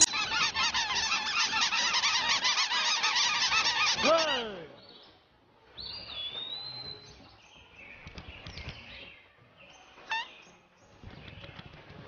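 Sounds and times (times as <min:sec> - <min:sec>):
cartoon birds chirping: 0:00.0 - 0:04.6.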